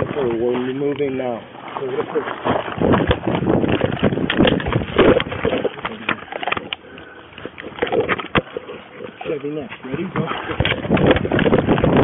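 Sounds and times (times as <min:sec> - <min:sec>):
body camera handling thumps and rustling: 0:02.6 - 0:06.8.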